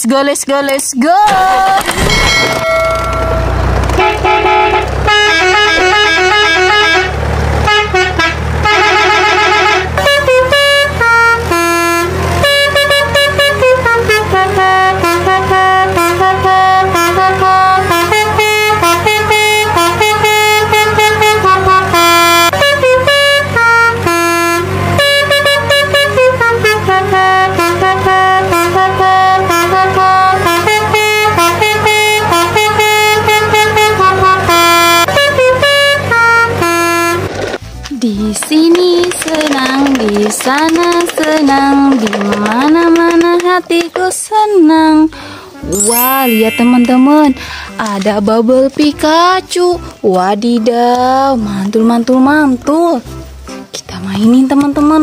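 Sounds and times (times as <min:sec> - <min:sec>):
multi-tone vehicle horn tune: 0:02.3 - 0:37.6, 0:45.5 - 0:47.8.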